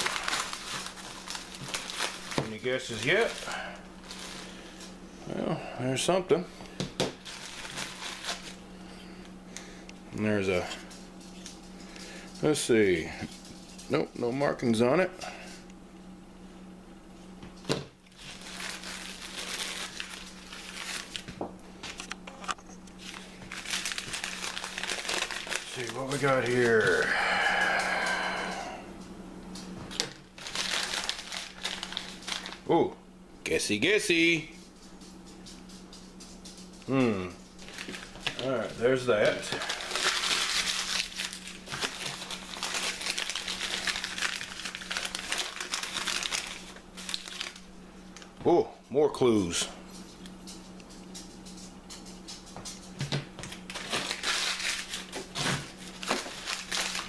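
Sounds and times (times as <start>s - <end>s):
newspaper crinkling and rustling: 0.0s - 4.8s, 7.2s - 8.6s, 18.1s - 22.1s, 22.9s - 27.0s, 29.9s - 32.7s, 37.6s - 47.7s, 53.4s - 57.0s.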